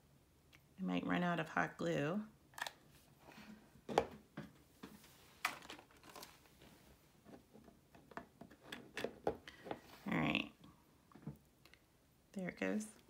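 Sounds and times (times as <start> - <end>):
plastic crinkling: 5.4 - 6.5.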